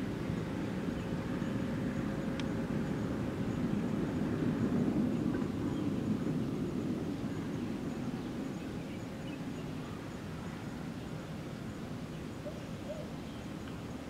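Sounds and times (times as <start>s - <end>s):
faint bird chirps: 12.1s - 14.0s.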